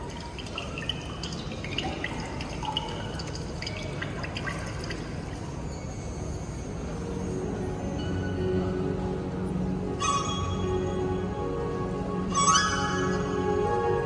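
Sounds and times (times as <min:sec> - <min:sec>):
high plinks like water drops: 0:00.0 - 0:06.4.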